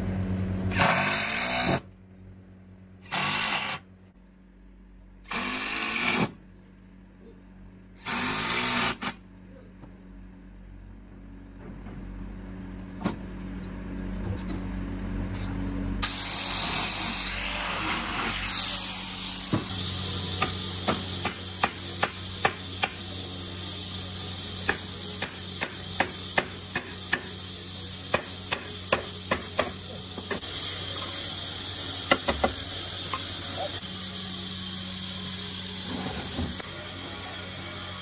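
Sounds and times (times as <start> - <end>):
workshop hiss: 3.0 - 3.9, 16.0 - 38.0.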